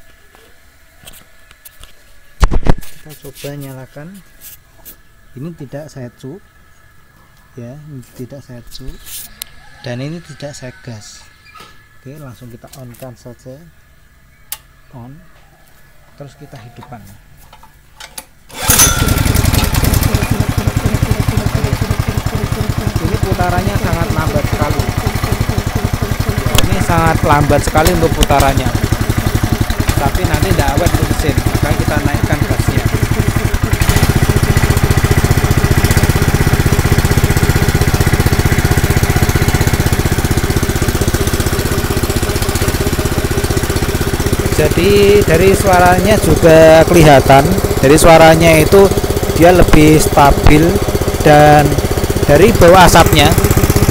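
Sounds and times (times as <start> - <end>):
engine slow idle: 18.6 - 53.9.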